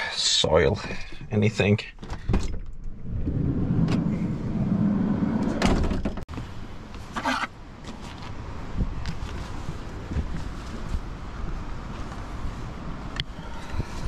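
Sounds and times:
sliding van door rumbling open: 2.2s - 6.3s.

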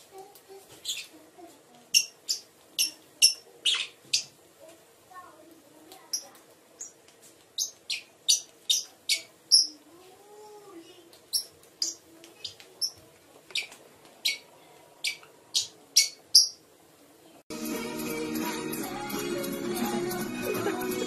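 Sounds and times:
parrots chirping: 0.8s - 1.2s, 1.9s - 4.4s, 6.1s - 9.8s, 11.3s - 16.7s.

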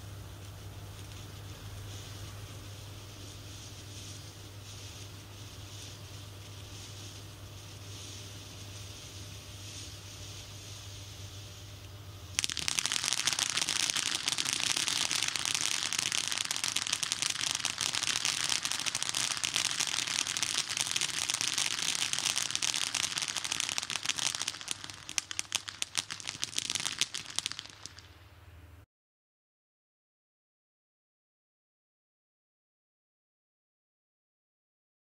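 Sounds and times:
sputtering crackles: 0.4s - 28.2s
firework fountain hissing: 0.6s - 28.4s.

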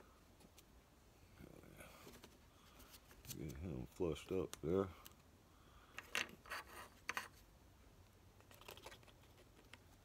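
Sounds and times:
wooden strip scraping on wood: 6.4s - 7.4s.

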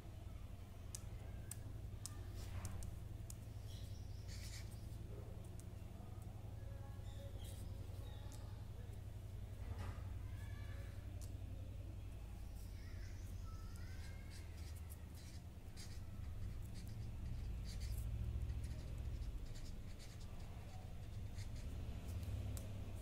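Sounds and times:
steady low hum: 0.0s - 23.0s
marker scratching on paper: 0.9s - 5.6s, 7.1s - 8.4s, 12.5s - 23.0s.

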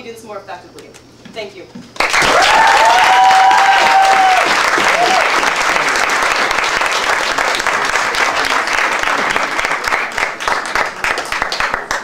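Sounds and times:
audience applauding: 2.0s - 12.0s.

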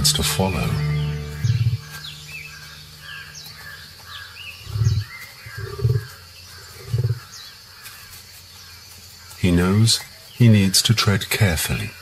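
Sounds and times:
deep thuds: 0.0s - 3.9s
steady low hum: 0.0s - 7.6s
birds chirping: 0.0s - 12.0s.

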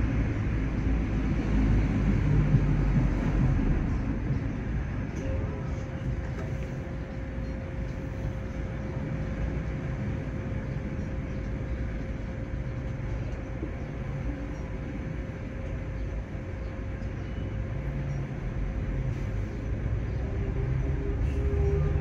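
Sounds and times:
low rumble: 0.0s - 11.2s
constant hum: 0.0s - 22.0s
road traffic passing: 0.0s - 22.0s.

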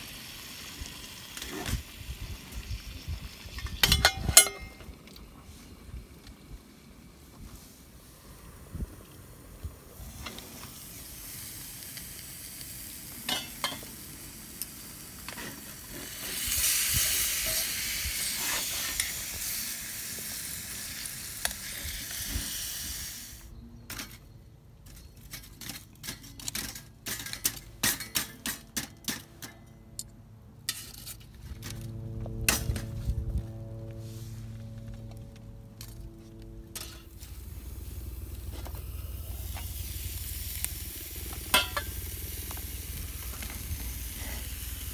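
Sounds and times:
food sizzling in oil: 16.0s - 23.3s, 39.1s - 44.9s.

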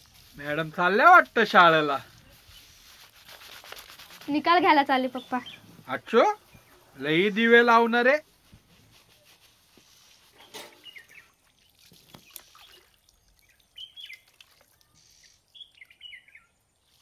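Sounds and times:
birds chirping: 4.8s - 7.8s, 10.3s - 16.8s.

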